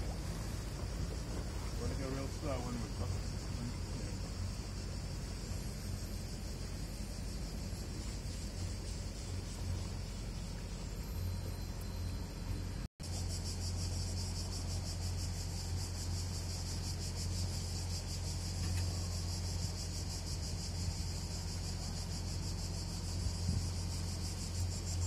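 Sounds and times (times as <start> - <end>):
boat engine humming: 0.0 - 25.0
cicadas buzzing: 0.0 - 25.0.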